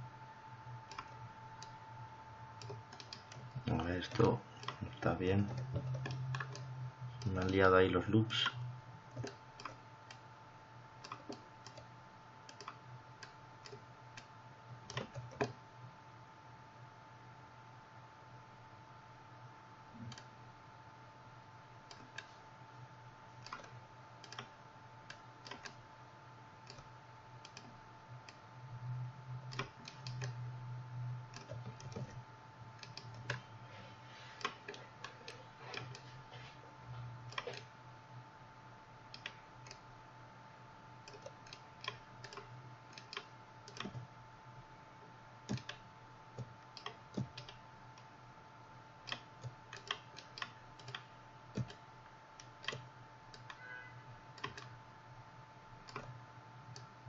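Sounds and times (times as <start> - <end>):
steady low hum: 0.0 - 57.0
keyboard and mouse clicking: 0.9 - 1.8, 2.6 - 7.6, 8.4 - 9.8, 11.0 - 11.9, 12.5 - 14.3, 14.9 - 15.6, 23.4 - 24.5, 25.4 - 25.8, 26.6 - 27.7, 29.5 - 30.4, 31.3 - 32.2, 32.8 - 33.4, 37.3 - 37.7, 39.1 - 39.8, 41.1 - 44.1, 45.5 - 45.8, 46.4 - 47.6, 49.1 - 51.8, 52.4 - 53.6, 54.4 - 54.7, 55.8 - 56.9.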